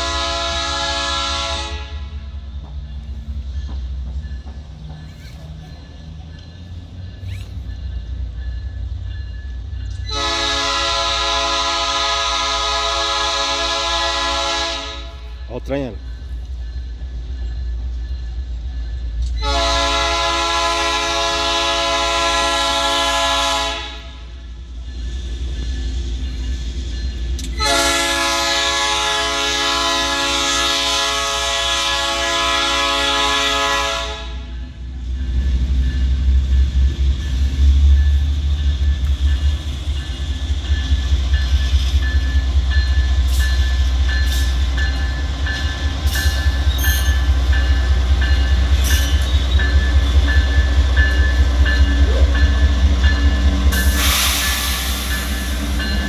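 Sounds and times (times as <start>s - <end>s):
train air horn blast: 0.0s - 2.2s, 10.1s - 15.4s, 19.4s - 24.3s, 27.6s - 34.6s
diesel engines rumbling: 0.0s - 56.0s
burst of hiss: 53.8s - 55.8s.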